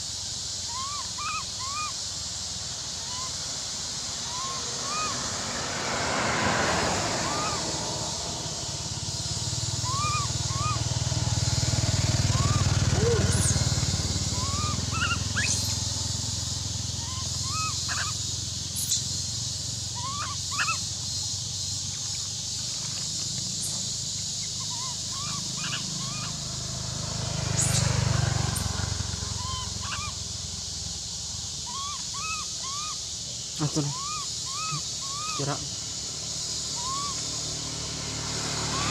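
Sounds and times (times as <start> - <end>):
insects hissing: 0.0 - 38.9
motorbike engine passing: 2.6 - 38.9
bird chirps: 9.7 - 10.9, 12.2 - 26.5, 27.6 - 30.2, 31.6 - 35.7, 36.5 - 37.5.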